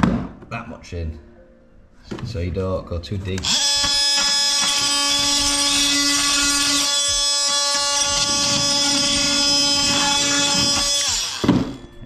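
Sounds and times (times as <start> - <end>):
oscillating multi-tool cutting wood: 3.4 - 12.0.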